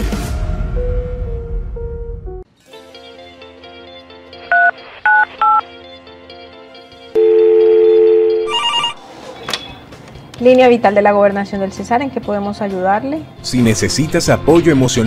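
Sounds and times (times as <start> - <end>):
soft background music: 0.8 - 15.0
electronic phone ring: 4.5 - 5.6, 7.2 - 9.0
two-tone telephone tone: 4.5 - 5.6, 7.2 - 9.0
phone keypad tones: 7.2 - 9.0.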